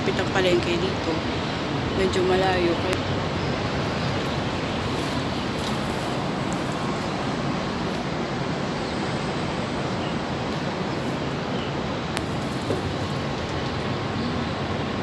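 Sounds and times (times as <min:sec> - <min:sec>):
distant traffic hum: 0:00.0 - 0:15.0.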